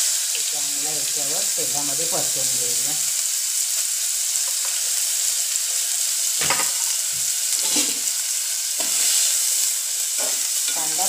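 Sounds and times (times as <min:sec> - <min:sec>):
onion sizzling in hot oil: 0:00.0 - 0:11.0
metal spoon scraping a pot: 0:07.6 - 0:08.1.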